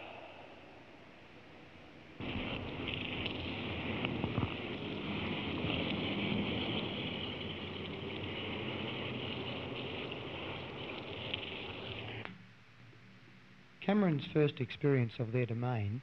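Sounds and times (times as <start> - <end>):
water rushing through drain: 2.2 - 12.2.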